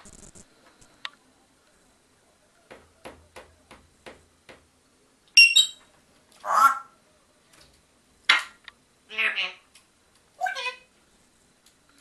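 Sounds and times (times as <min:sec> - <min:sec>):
parrot whistled call: 0:05.4 - 0:05.8.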